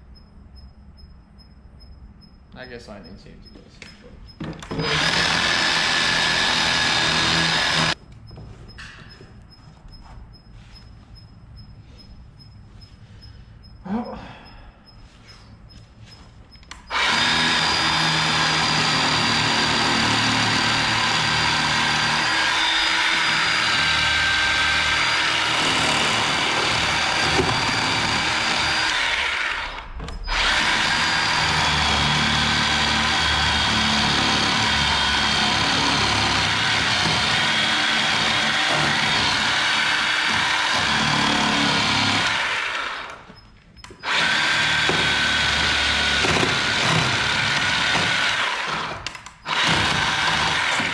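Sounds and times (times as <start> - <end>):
battery chainsaw cutting wood: 4.7 - 8.0, 16.9 - 43.3, 44.0 - 50.9.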